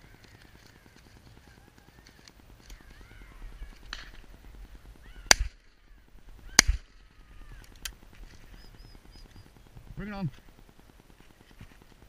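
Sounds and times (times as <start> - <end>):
birds calling: 0.0 - 10.7
shotgun shots: 5.2 - 5.8, 6.5 - 7.0.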